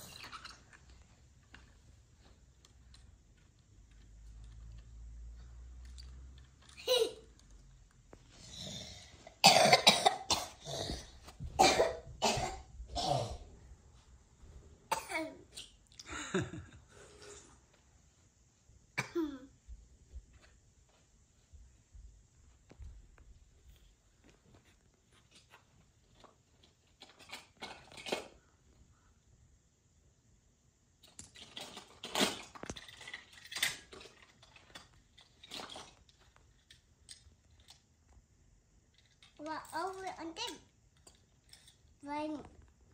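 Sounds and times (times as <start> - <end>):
person coughing: 9.4 - 13.4, 19.0 - 19.5
toy cars clattering together: 26.1 - 28.4, 31.0 - 37.9, 38.9 - 42.0.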